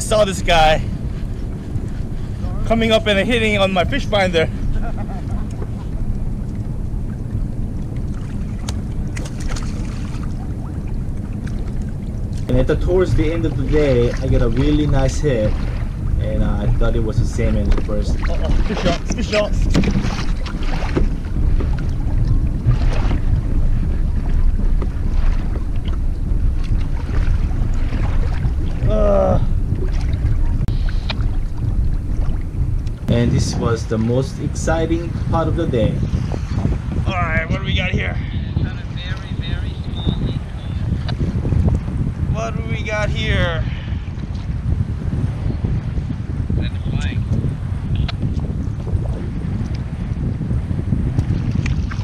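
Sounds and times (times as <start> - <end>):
water lapping at kayak hull: 0.0 - 52.0
wind rumbling on microphone: 0.0 - 52.0
fish splashing: 7.9 - 12.5.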